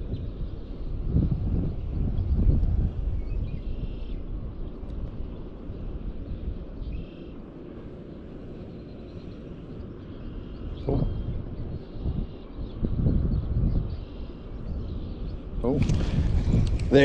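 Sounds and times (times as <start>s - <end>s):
wind rumbling on microphone: 0.0s - 17.0s
faint bird calls: 3.2s - 17.0s.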